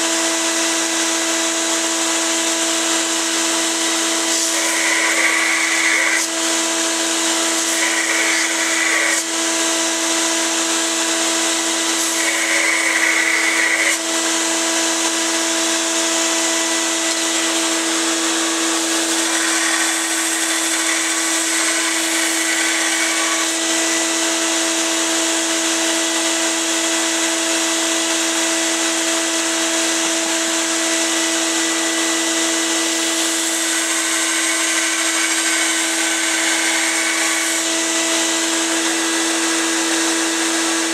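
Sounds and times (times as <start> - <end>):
belt sander running: 0.0 - 40.9
steel grinding on belt: 4.1 - 9.3, 11.8 - 14.2, 16.4 - 24.2, 33.0 - 40.9.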